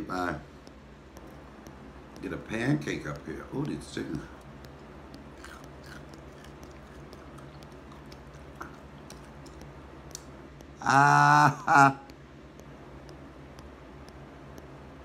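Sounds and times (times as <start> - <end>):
mouth clicks: 0.0 - 14.8
low steady hum: 0.0 - 15.0
person chewing food: 1.1 - 10.3.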